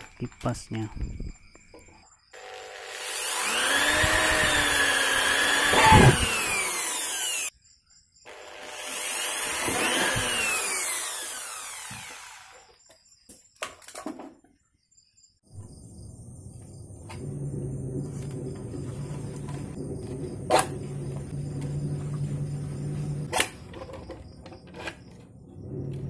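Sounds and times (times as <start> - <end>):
electric drill boring plastic: 2.4 - 7.5, 8.3 - 12.8.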